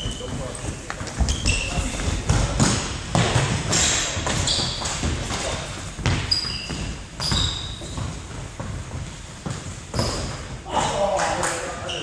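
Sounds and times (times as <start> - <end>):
trainers squeaking on floor: 0.0 - 2.9, 3.6 - 10.7, 11.8 - 12.0.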